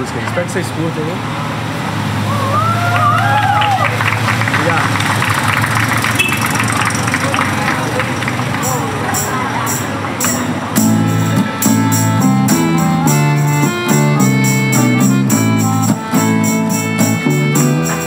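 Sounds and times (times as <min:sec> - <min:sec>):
jingling hand percussion: 0:08.2 - 0:18.0
acoustic guitar: 0:08.5 - 0:18.0
accordion chords: 0:08.6 - 0:18.0.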